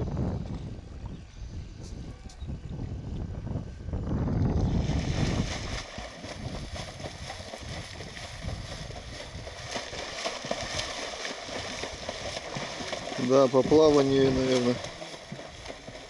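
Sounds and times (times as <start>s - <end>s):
low rumble: 0.0s - 16.0s
legs kicking and splashing water: 4.6s - 16.0s.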